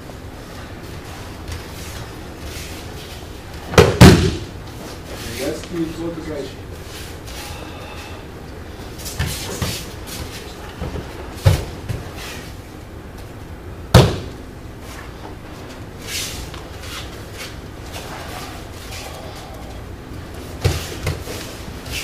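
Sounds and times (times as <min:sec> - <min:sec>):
body slamming onto mat: 0:03.7 - 0:04.5, 0:13.9 - 0:14.3.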